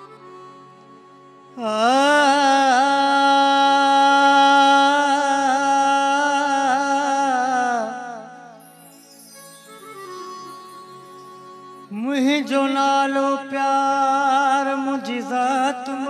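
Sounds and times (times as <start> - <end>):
man singing a long held note: 1.6 - 8.6, 11.9 - 16.0.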